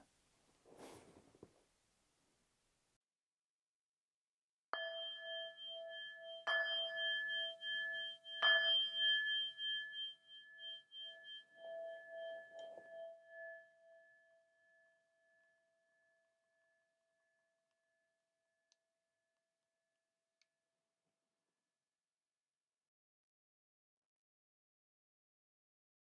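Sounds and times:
singing bowl ringing: 4.8 - 16.2.

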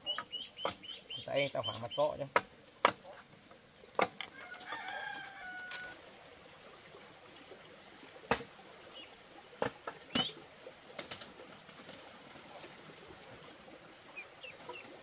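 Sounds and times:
rooster crowing: 4.3 - 6.0.

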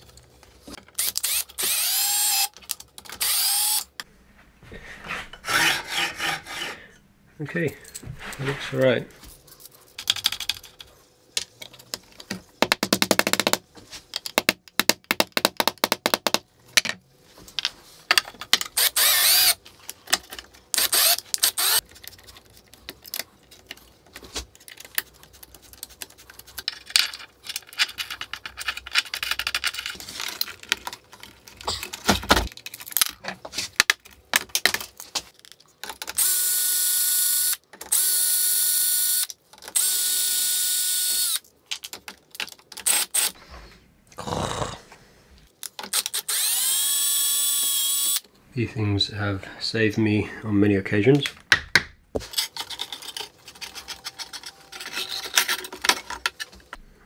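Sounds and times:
cordless drill driving screws: 1.0 - 2.5, 3.2 - 3.9, 18.8 - 19.6, 20.8 - 21.8, 45.9 - 48.2
metallic clicks and rattles of tools: 52.3 - 56.8.

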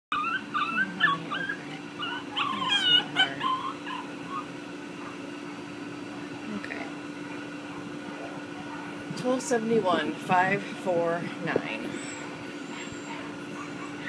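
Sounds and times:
dog whimpering: 0.1 - 4.6, 11.9 - 14.0.

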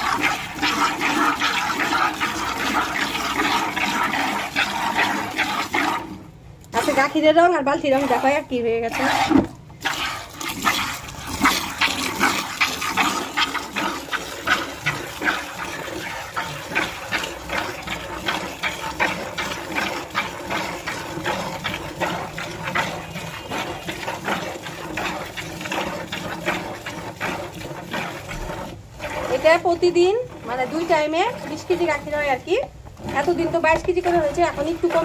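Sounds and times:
milk squirting into plastic bucket: 0.0 - 35.0.

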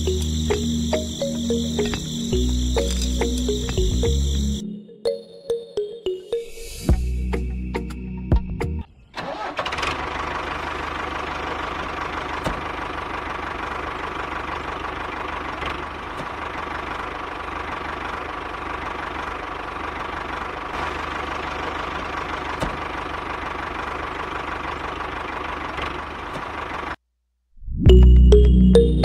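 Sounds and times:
tractor engine idling: 0.0 - 4.6, 9.2 - 27.0.

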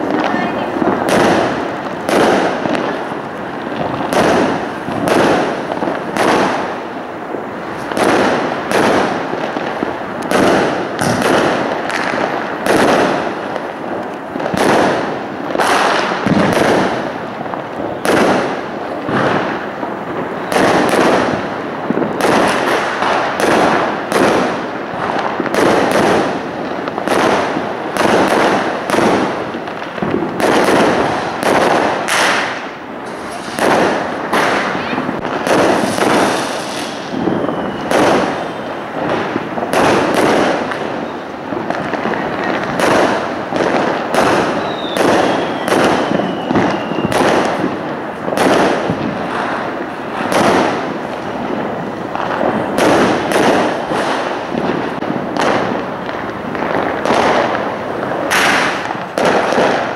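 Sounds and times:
fireworks bangs: 0.0 - 59.9
fireworks crackle: 0.0 - 59.9.

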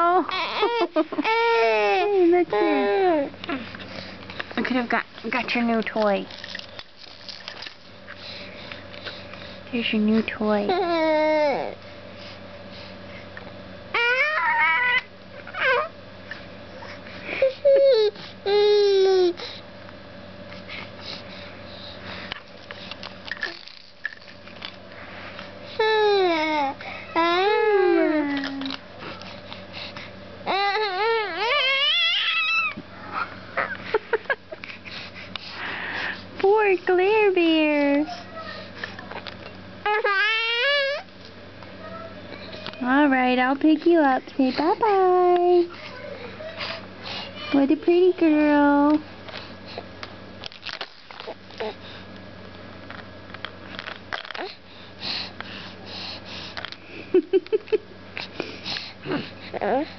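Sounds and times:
baby crying: 0.2 - 3.3, 14.0 - 15.9, 30.5 - 33.2, 39.9 - 41.0
baby breathing and sniffling: 34.6 - 36.3, 54.4 - 56.7, 58.2 - 59.9.

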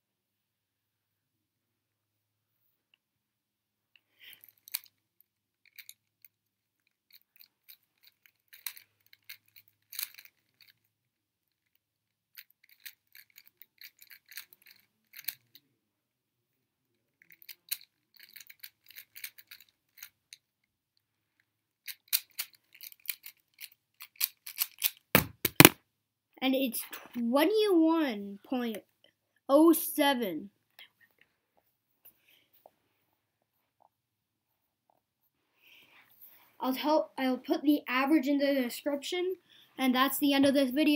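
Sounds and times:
plastic puzzle cube clicking: 21.9 - 25.8.

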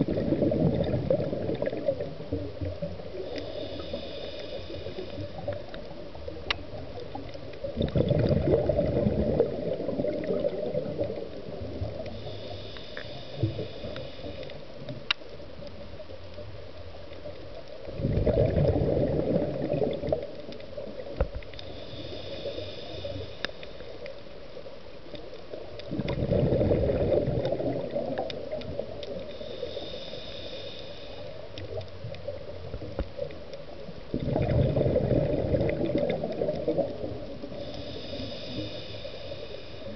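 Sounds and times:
bubbling rush of exhaled air: 0.0 - 5.4, 7.6 - 12.6, 17.9 - 20.3, 25.9 - 30.7, 34.1 - 39.9
regulator whistling hiss: 29.4 - 31.3, 37.6 - 39.9.

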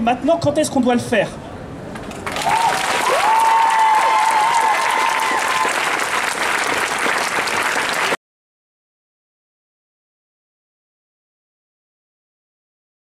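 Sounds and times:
crowd applauding: 1.9 - 8.2
high-pitched cheer: 2.2 - 8.2.

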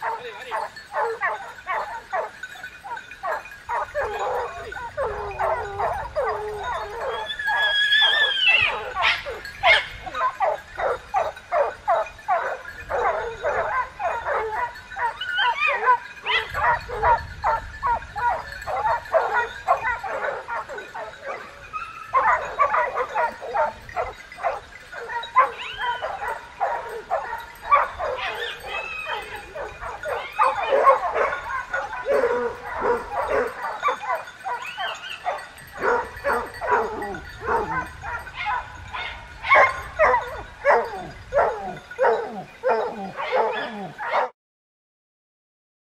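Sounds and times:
dogs barking: 0.0 - 44.3
hounds yelping and baying: 0.0 - 44.3
dog crying rising and falling: 2.9 - 10.5, 13.6 - 16.5, 25.0 - 35.4.

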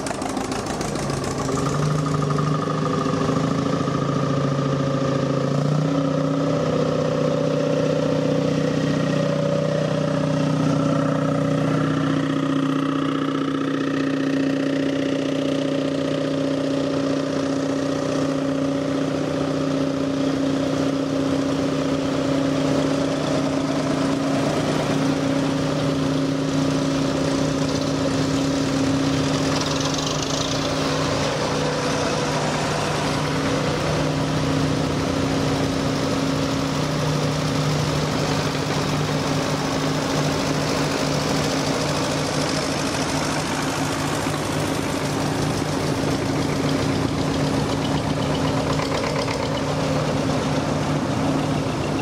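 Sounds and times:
tractor engines running: 0.0 - 52.0.

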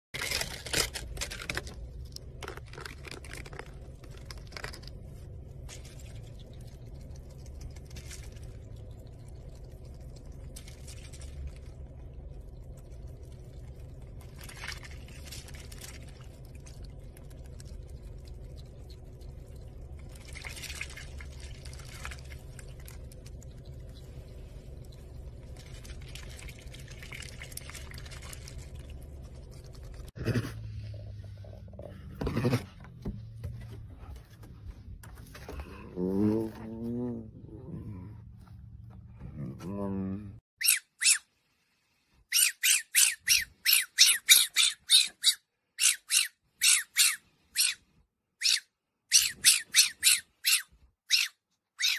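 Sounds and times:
duck slurping and splashing water: 2.1 - 31.9.

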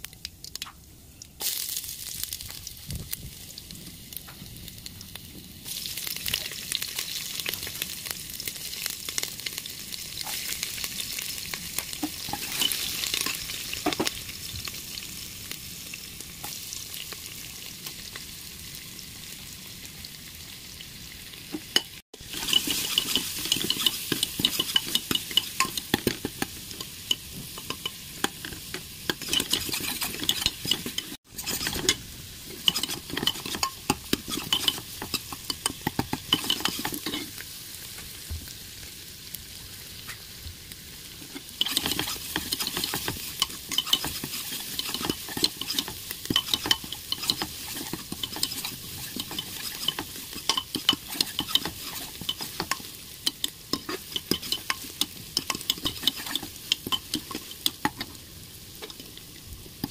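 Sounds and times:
onions frying with crackling sizzle: 0.0 - 59.9
seeds sizzling in hot fat: 0.0 - 59.9
stirring clicks: 22.3 - 32.0, 32.6 - 37.2, 41.4 - 58.1.

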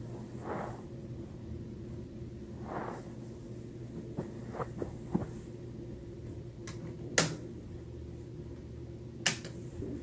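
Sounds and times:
steady low hum: 0.0 - 10.0
sneakers shuffling on carpet: 4.0 - 5.5.

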